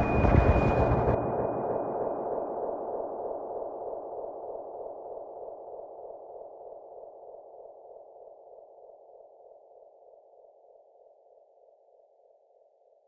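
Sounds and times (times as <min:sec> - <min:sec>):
pulsing ringing tone: 0:00.0 - 0:06.1.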